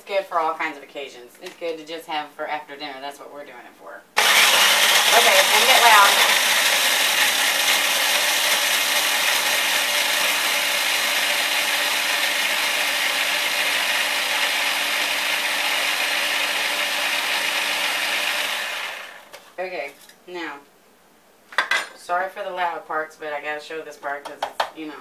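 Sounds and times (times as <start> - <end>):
electric grinder motor running: 4.2 - 19.3.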